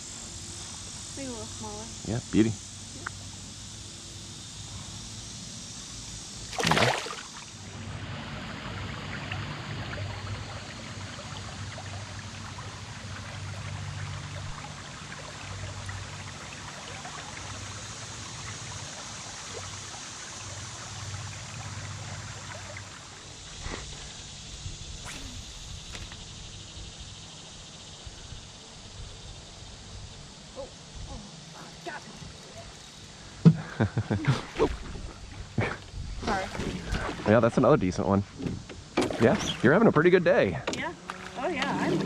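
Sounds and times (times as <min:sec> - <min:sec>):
river water trickling: 0:05.6 - 0:30.5.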